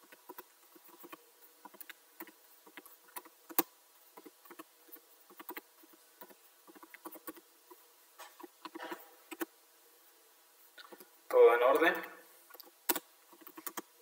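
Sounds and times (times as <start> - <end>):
computer keyboard typing: 5.3 - 5.6, 6.2 - 7.4, 12.6 - 13.9.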